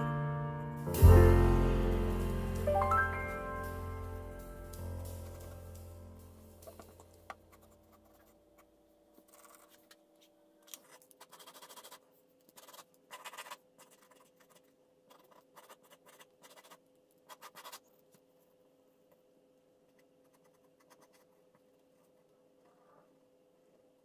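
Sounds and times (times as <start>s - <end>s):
pencil scratching on paper: 7.5s - 9.8s, 10.8s - 17.9s, 19.9s - 22.3s.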